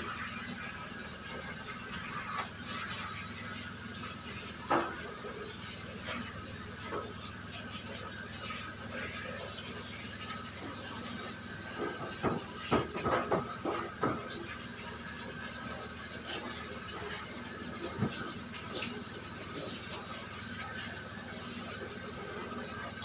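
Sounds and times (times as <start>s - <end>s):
shower sprayer running water: 0.0s - 23.0s
knocks and clatters in metal tub: 11.7s - 14.6s.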